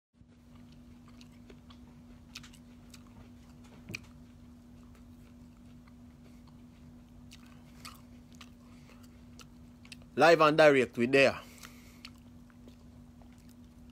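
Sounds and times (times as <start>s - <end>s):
low steady hum: 0.2s - 13.9s
mouth clicks and chewing smacks: 0.6s - 4.2s.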